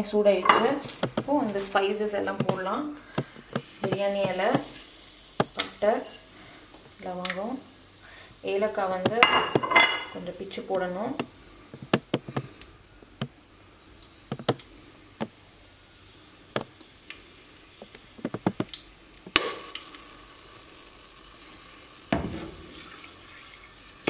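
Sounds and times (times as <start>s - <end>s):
spices sizzling in hot oil: 0.8s - 11.7s, 12.5s - 24.0s
spices snapping with sharp clicks: 18.2s - 20.0s.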